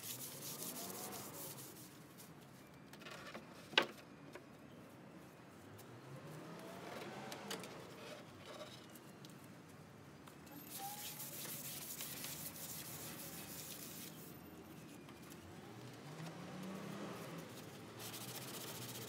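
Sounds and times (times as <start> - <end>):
sanding block on wood: 0.0 - 1.9, 10.7 - 14.3, 18.0 - 19.0.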